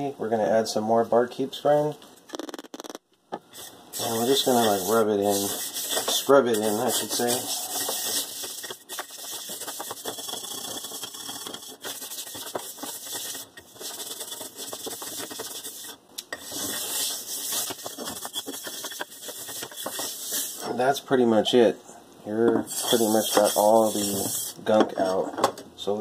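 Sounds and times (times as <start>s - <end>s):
brush scrubbing a metal pan: 3.5s - 20.7s, 22.7s - 24.6s.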